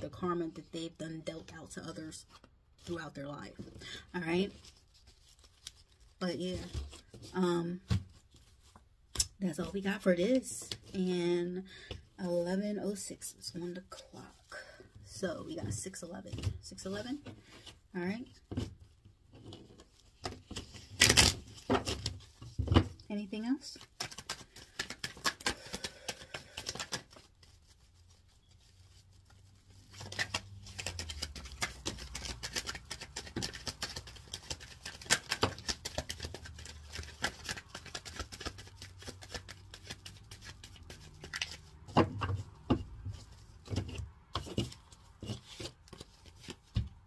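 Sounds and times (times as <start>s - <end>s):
cards being shuffled: 23.8s - 47.0s.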